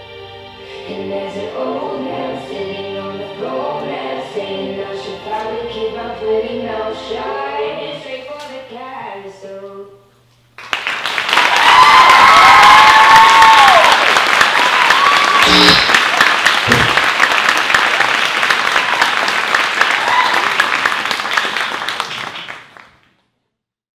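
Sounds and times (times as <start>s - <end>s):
audience applauding: 10.6s - 23.1s
cheering whoops: 11.4s - 16.0s, 19.9s - 20.6s.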